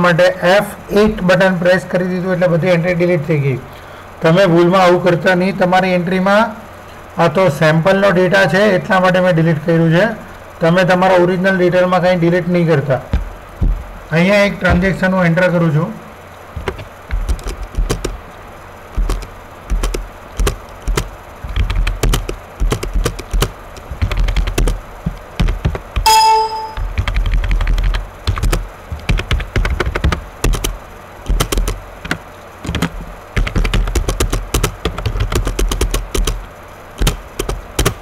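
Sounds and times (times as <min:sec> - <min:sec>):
keyboard typing: 0:16.6 - 0:18.2, 0:18.9 - 0:36.4, 0:37.0 - 0:38.0
computer alert ding: 0:26.0 - 0:27.0.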